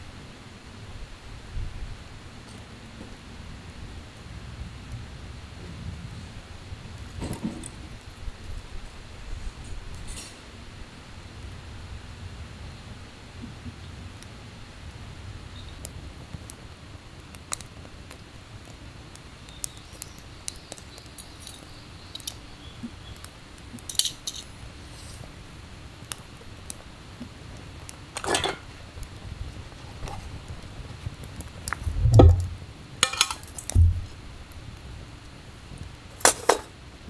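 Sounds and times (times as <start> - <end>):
camp cookware clinking: 23.8 - 24.6, 28.1 - 28.8, 32.2 - 33.8, 36.2 - 36.8
dull thumps: 31.9 - 32.6, 33.7 - 34.2.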